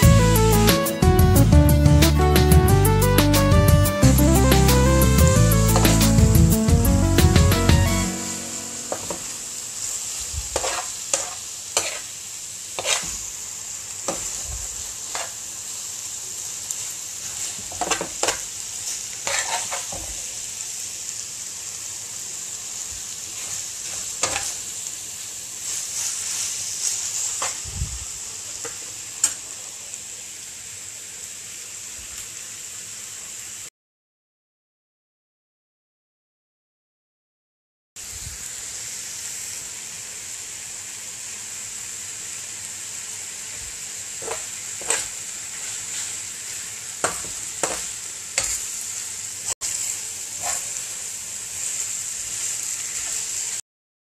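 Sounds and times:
food sizzling in a wok: 0.0 - 33.7, 38.0 - 53.6
metal spatula scraping a pan: 10.5 - 12.1, 12.8 - 13.2, 14.1 - 14.5, 15.1 - 15.4, 17.2 - 20.2, 23.4 - 24.6, 25.6 - 27.6, 44.2 - 46.3, 47.0 - 48.7, 50.4 - 50.9.

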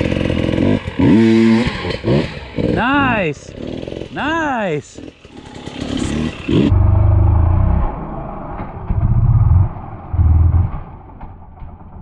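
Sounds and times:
dirt bike engine revving: 0.0 - 10.8.

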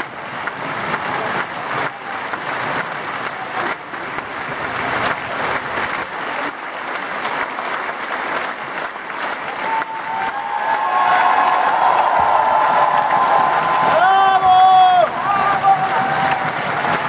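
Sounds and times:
audience applauding: 0.0 - 17.0
held shout: 9.6 - 17.0.

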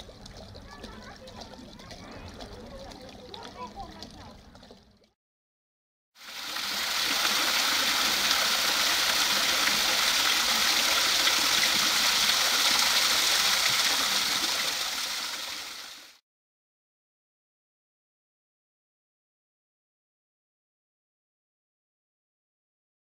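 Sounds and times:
water splashing through lock gates: 0.0 - 5.1.

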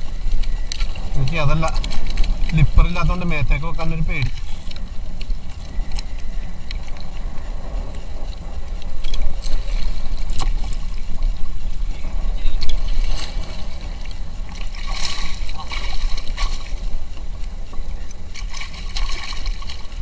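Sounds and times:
low rumble: 0.0 - 20.0
paddle splash: 0.0 - 20.0
water lapping and splashing: 0.0 - 20.0.

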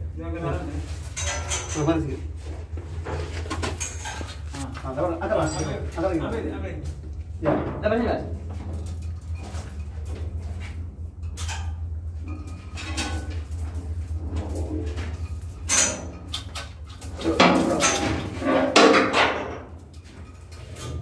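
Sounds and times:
low machinery hum: 0.0 - 21.0
hoist chains rattling and clinking: 1.0 - 2.1, 3.5 - 6.6, 8.6 - 21.0.

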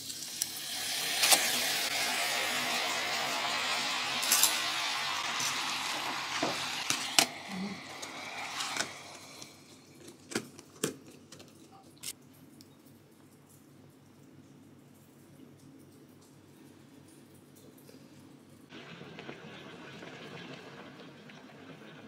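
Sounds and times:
heating pack hissing steam: 0.0 - 9.8.

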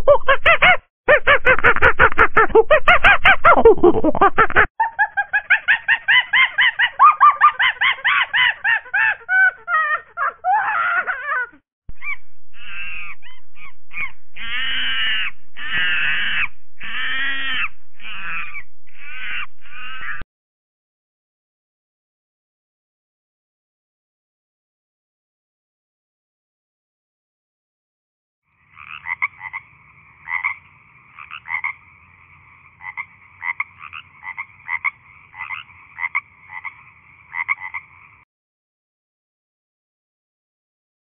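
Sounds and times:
high-pitched animal calls: 0.0 - 20.2.

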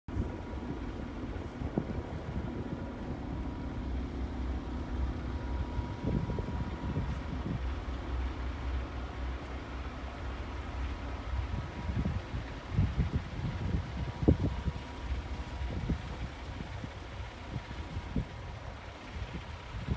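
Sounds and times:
diesel truck engine idling: 0.1 - 19.9.

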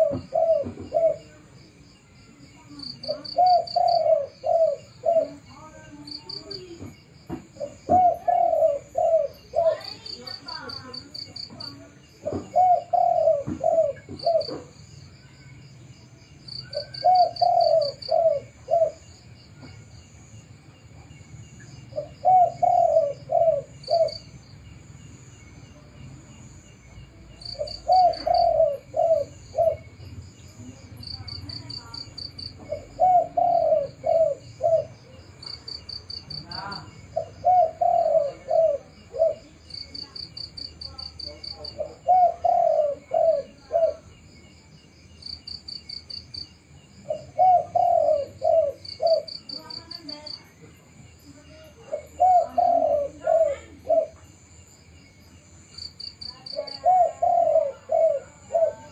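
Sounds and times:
dove cooing: 0.0 - 1.5, 2.7 - 14.8, 16.5 - 19.2, 21.9 - 24.4, 27.3 - 44.2, 47.0 - 50.5, 51.3 - 54.5, 56.0 - 58.9
crickets chirping: 0.0 - 58.9.

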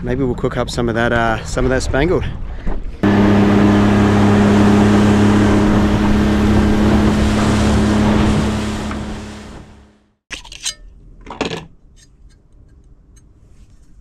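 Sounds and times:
wind and water rushing: 3.0 - 10.0
boat motor running: 3.0 - 10.2.

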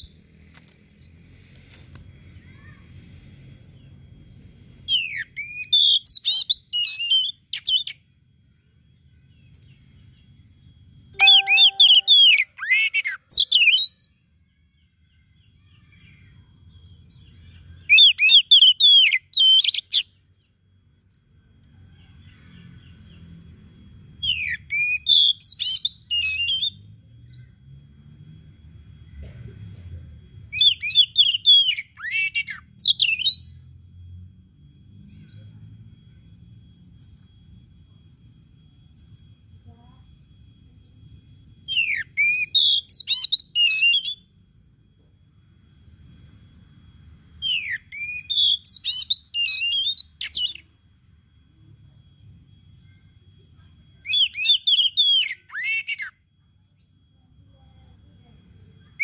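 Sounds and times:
faint steady high tone: 0.0 - 59.0
bird singing whistled phrases: 4.9 - 8.0, 11.2 - 14.2, 17.3 - 20.2, 24.2 - 27.6, 30.5 - 33.7, 41.7 - 44.3, 47.4 - 50.7, 54.0 - 56.2.

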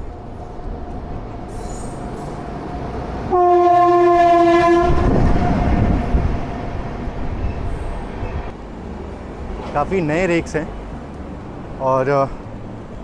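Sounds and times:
train rumbling past: 0.0 - 13.0
locomotive horn two-note blast: 3.3 - 6.2.

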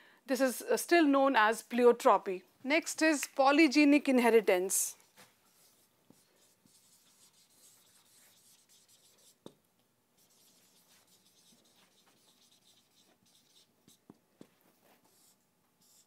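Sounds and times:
marker scratching on whiteboard: 5.0 - 9.6, 10.2 - 16.0.

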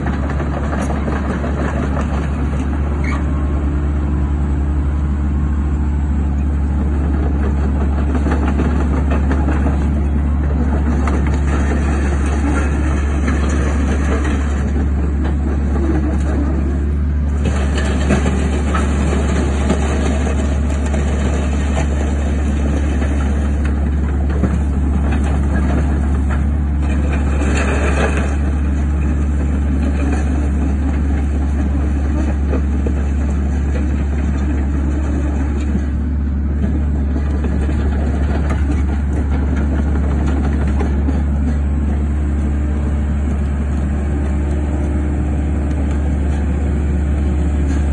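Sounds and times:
excavator diesel engine running: 0.0 - 47.9.

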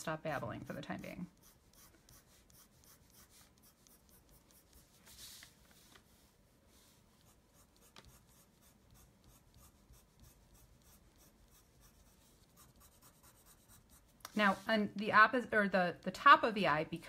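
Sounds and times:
pencil scratching on paper: 0.1 - 5.4, 6.7 - 14.8.

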